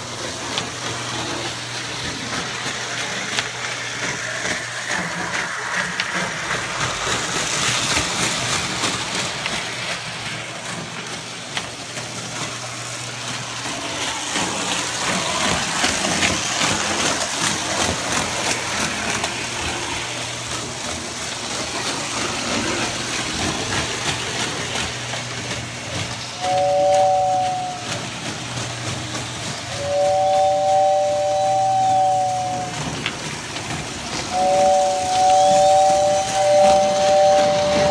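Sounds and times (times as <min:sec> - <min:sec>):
toy train clattering on track: 0:00.0 - 0:37.9
two-note toy train whistle: 0:26.4 - 0:28.1, 0:29.7 - 0:33.1, 0:34.3 - 0:37.9.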